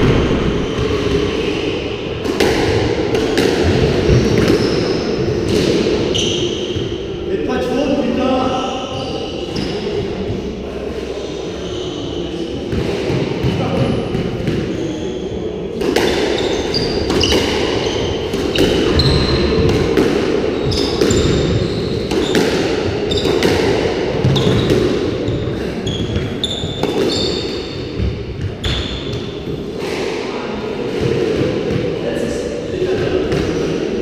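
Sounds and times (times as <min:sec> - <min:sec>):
squash ball striking racquets and walls: 0:00.0 - 0:07.2, 0:12.3 - 0:32.0, 0:32.7 - 0:34.0
shoes squeaking on wooden floor: 0:16.4 - 0:19.6, 0:25.3 - 0:27.6.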